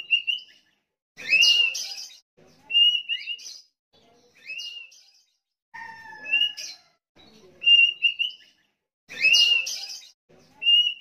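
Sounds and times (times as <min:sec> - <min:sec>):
bird singing whistled phrases: 0:00.0 - 0:00.6, 0:02.7 - 0:03.7, 0:07.6 - 0:08.5, 0:10.6 - 0:11.0.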